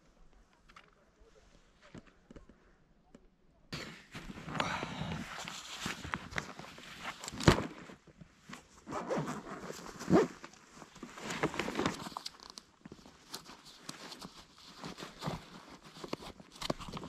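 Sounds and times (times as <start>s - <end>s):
fabric rustling: 3.8s - 12.3s
zipper being pulled: 8.8s - 10.5s.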